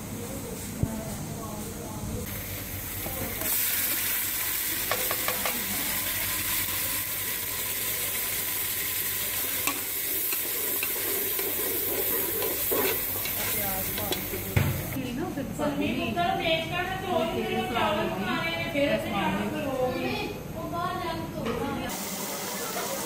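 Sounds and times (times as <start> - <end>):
onion paste sizzling in oil: 2.2 - 15.0, 21.9 - 23.0.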